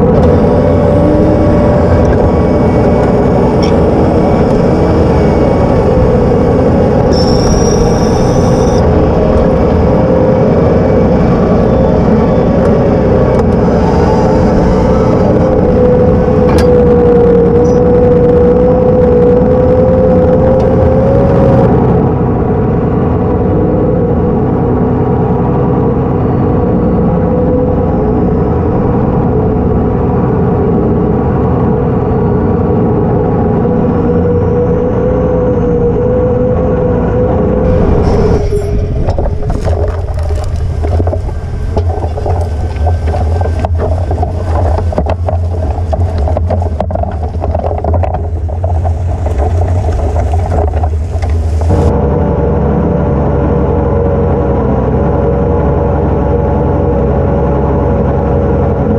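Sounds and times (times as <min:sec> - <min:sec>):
tractor diesel engine droning: 0:00.0 - 0:58.9
plough crackling through soil: 0:37.7 - 0:51.9.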